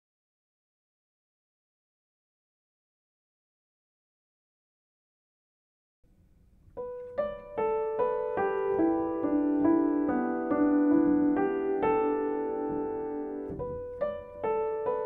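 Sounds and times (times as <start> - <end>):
slow solo piano melody: 6.6 - 15.0.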